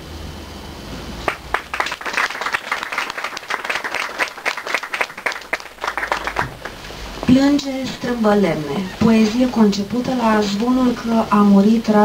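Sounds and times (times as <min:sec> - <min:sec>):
audience applauding: 0:01.2 - 0:07.3.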